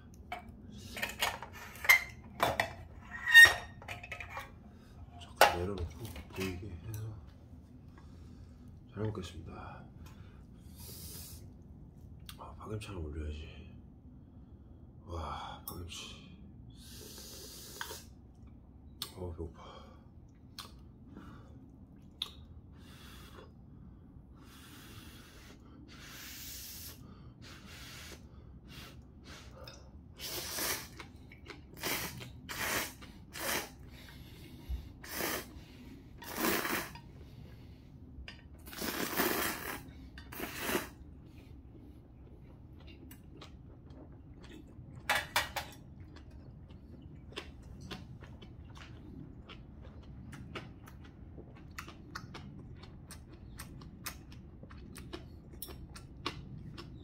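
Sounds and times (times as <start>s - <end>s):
person slurping noodles: 16.8s - 18.2s, 30.2s - 31.1s, 31.7s - 34.0s, 35.0s - 37.0s, 38.6s - 41.0s
person chewing: 30.6s - 37.6s, 38.5s - 45.1s, 45.7s - 57.0s.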